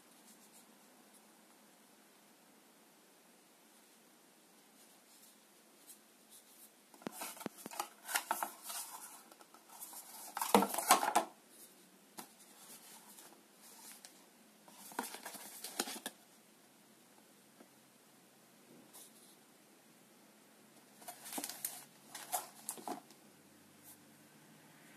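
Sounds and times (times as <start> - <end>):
paper and cardboard crinkling: 6.4 - 11.3, 12.2 - 16.2, 21.0 - 23.1.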